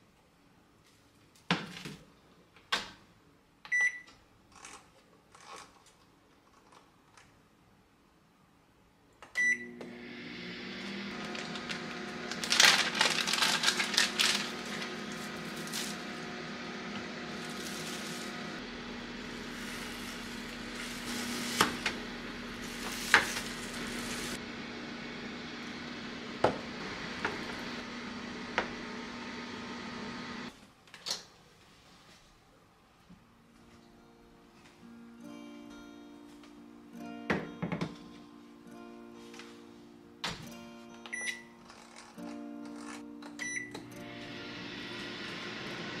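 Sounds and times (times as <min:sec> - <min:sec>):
microwave beeping: 0:03.7 - 0:04.1, 0:09.3 - 0:13.0, 0:41.1 - 0:41.6, 0:43.4 - 0:46.0
microwave humming: 0:09.4 - 0:30.5, 0:43.4 - 0:46.0.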